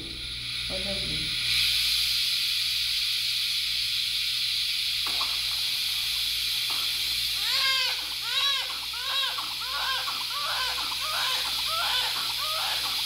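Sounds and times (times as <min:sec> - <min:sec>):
suction catheter hissing: 0:00.0 - 0:13.0
newborn crying: 0:07.4 - 0:13.0.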